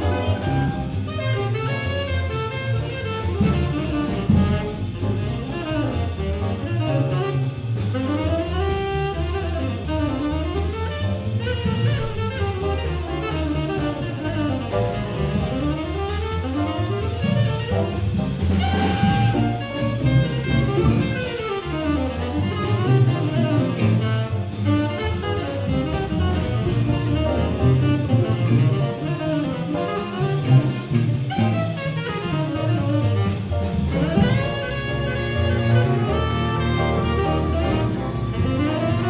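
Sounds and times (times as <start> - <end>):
double bass: 0.0 - 39.0
jazz ensemble playing: 0.0 - 39.0.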